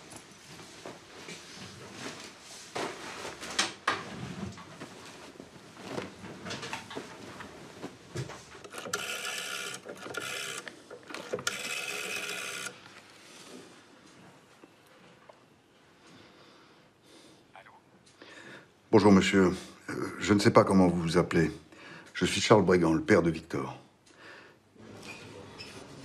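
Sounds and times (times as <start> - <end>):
cloth rustling: 0.1 - 8.6
telephone ringing: 8.6 - 13.0.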